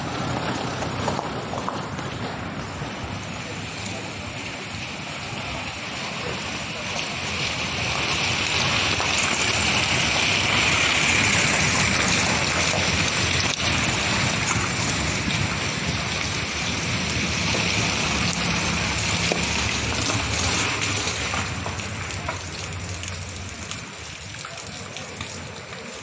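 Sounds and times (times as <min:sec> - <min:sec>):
steady rain: 0:00.0 - 0:26.0.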